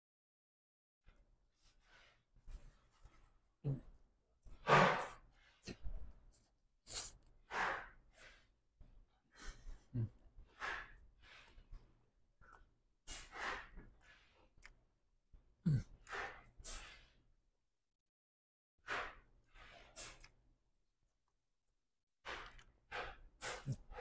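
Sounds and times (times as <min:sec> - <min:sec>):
noisy breathing through nose: 0:06.8 - 0:08.6, 0:09.2 - 0:11.9, 0:12.5 - 0:14.6, 0:16.0 - 0:17.2, 0:22.2 - 0:24.0
man chewing food: 0:14.0 - 0:14.8, 0:22.3 - 0:24.0.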